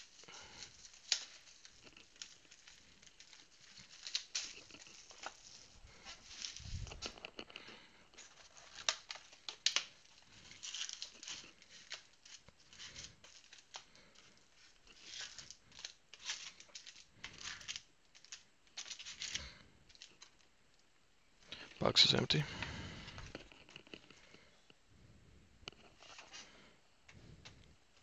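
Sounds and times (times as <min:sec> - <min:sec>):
plastic wrap tearing and crinkling: 0:00.0 - 0:20.5.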